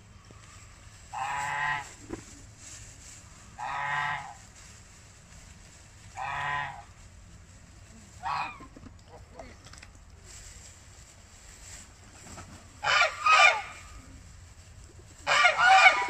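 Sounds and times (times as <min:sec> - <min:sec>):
geese honking: 0:01.1 - 0:02.0, 0:03.6 - 0:04.4, 0:06.1 - 0:07.0, 0:08.2 - 0:08.7, 0:12.8 - 0:14.1, 0:15.2 - 0:16.0.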